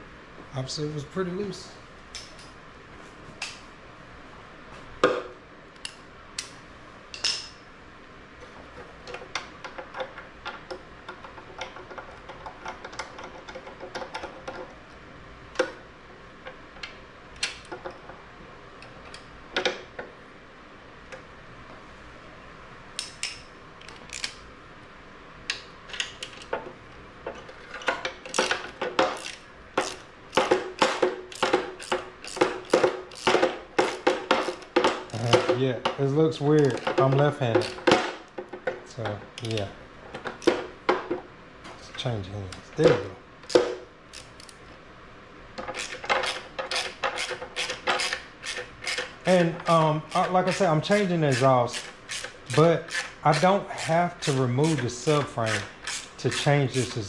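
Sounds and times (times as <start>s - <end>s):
ratchet wrench clicking: 29.1s - 35.3s, 45.7s - 54.8s, 55.4s - 56.5s.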